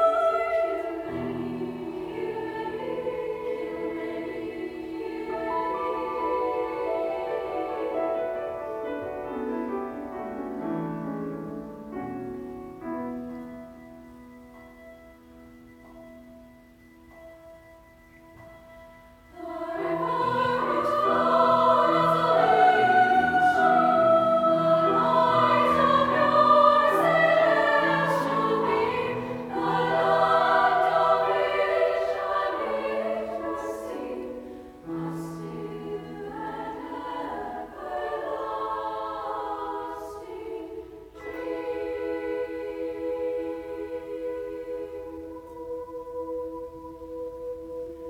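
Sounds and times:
girls' choir singing in parts: 0.0 - 8.6, 19.3 - 48.0.

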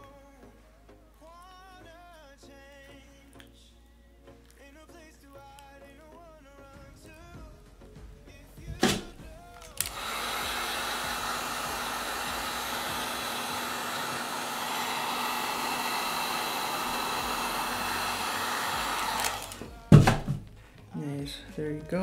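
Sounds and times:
hot-air blower running: 9.8 - 19.8.

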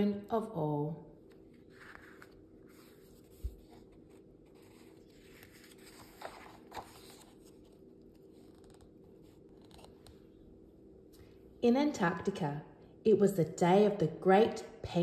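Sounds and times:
faint steady hum: 0.0 - 15.0
book pages turning: 1.2 - 10.3
paper swishes: 1.6 - 7.6.

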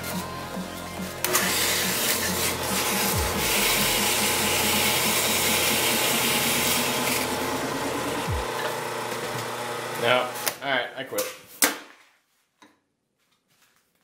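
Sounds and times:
drill press spinning: 1.2 - 10.6
sandpaper sanding hiss: 1.4 - 7.1.

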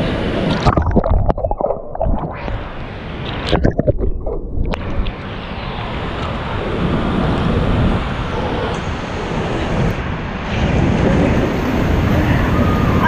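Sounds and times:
water churning and sloshing: 0.4 - 5.4.

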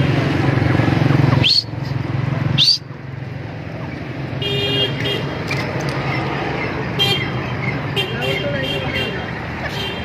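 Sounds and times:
vehicle engine rumbling: 0.0 - 10.0
rising whistle-like calls: 1.4 - 1.8, 2.6 - 2.9.

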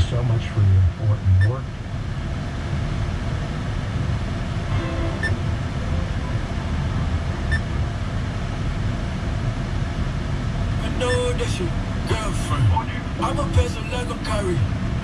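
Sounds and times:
engine idling inside cabin: 0.0 - 15.0
faint short radio beeps: 11.0 - 11.6.

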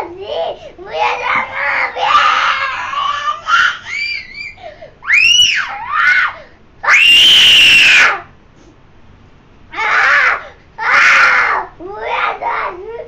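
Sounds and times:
boy crying and wailing: 0.2 - 6.4
boy screaming: 0.9 - 8.3, 9.8 - 13.0.

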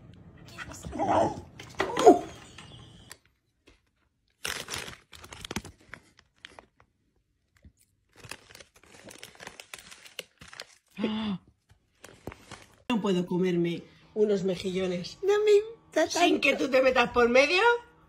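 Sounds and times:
foil snack bag crinkling: 4.3 - 11.0, 11.9 - 12.9.

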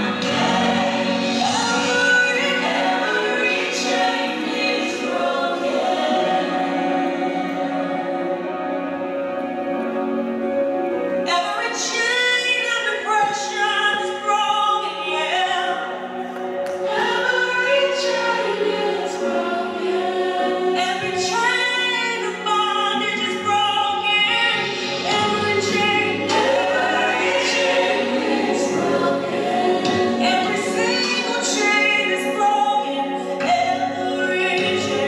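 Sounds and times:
gospel choir singing: 0.0 - 35.0.

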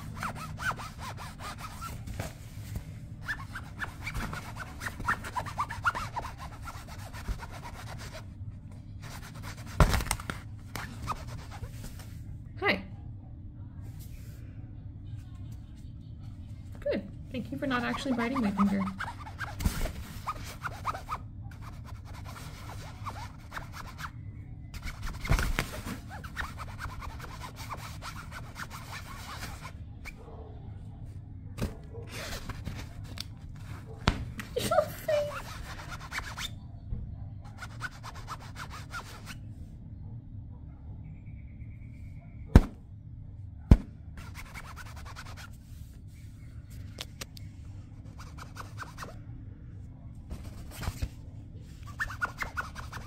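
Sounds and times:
scratching on fabric: 0.0 - 8.3, 9.0 - 12.2, 17.6 - 30.2, 32.0 - 34.0, 34.7 - 36.6, 37.5 - 39.4, 44.2 - 46.4, 48.0 - 49.2, 50.3 - 53.0.

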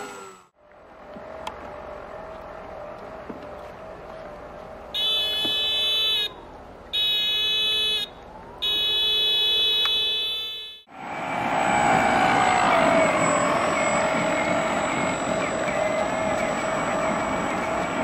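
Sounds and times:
plane engine drone: 0.0 - 6.8, 10.9 - 18.0.

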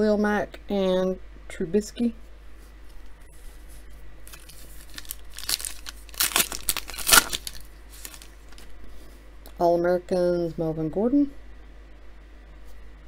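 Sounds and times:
foil wrapper crinkling and tearing: 4.2 - 8.7.

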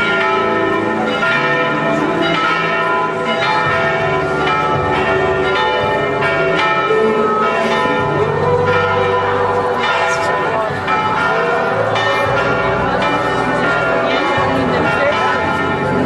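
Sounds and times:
church bells pealing: 0.0 - 16.0.

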